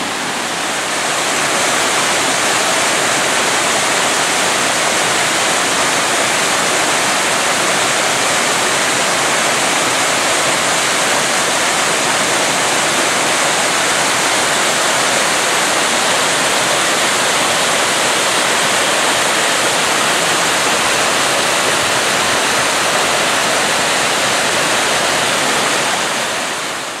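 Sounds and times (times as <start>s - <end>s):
waterfall rushing over rocks: 0.0s - 27.0s.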